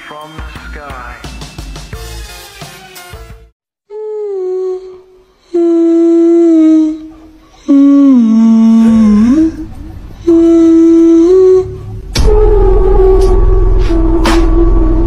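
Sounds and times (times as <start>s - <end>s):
person humming a slow tune: 3.9s - 15.0s.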